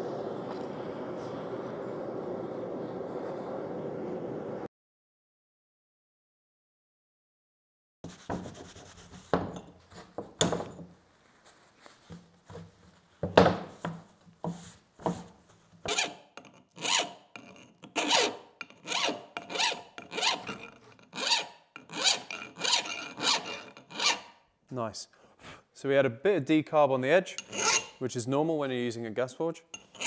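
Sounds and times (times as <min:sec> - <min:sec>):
file rasping on steel: 0:15.8 - 0:24.4, 0:27.3 - 0:28.0, 0:29.7 - 0:30.0.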